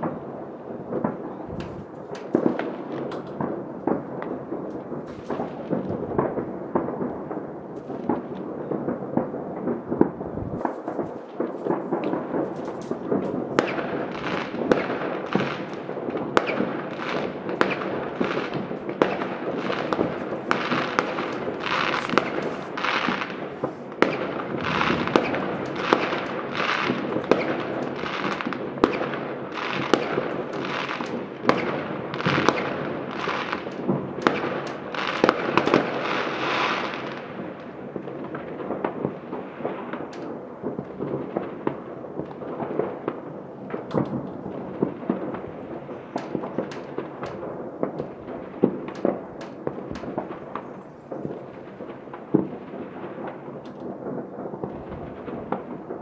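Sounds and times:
distant fireworks bangs: 0.0s - 56.0s
fireworks crackling: 0.0s - 56.0s.

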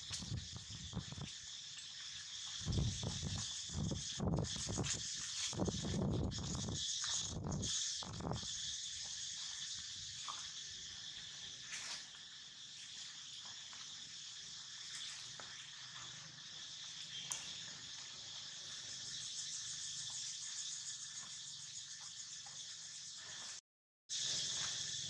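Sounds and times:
high-pitched insect chorus: 0.0s - 25.0s.

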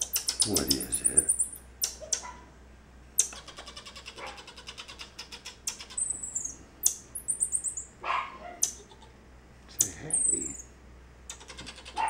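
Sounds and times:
marmoset clicking chirps: 0.0s - 2.4s, 3.2s - 7.9s, 8.6s - 9.1s, 9.7s - 10.7s, 11.3s - 12.0s
marmoset high-pitched calls: 0.0s - 2.4s, 3.2s - 7.9s, 8.6s - 9.1s, 9.7s - 10.7s, 11.3s - 12.0s.

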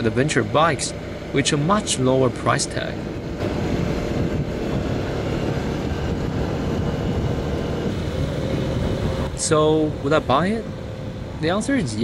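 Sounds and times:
motorcycle engine cruising: 0.0s - 12.0s
wind and road noise: 0.0s - 12.0s.

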